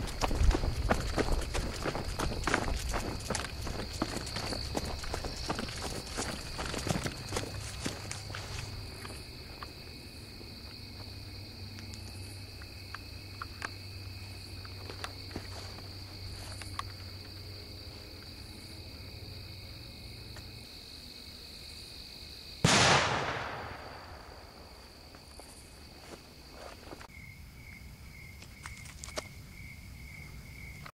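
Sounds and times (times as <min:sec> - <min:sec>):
loud firework bang: 0:22.6 - 0:24.5.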